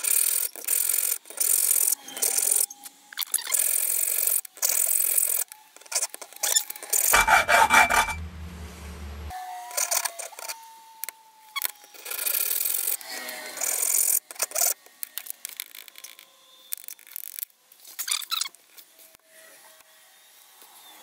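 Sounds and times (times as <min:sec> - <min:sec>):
hacksaw cutting metal: 0:06.8 - 0:08.6.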